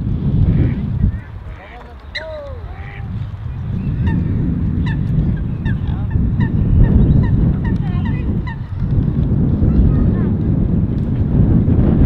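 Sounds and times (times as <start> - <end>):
waterfowl calling: 0.5 - 3.2, 3.8 - 8.8
loud low rumble: 2.6 - 12.0.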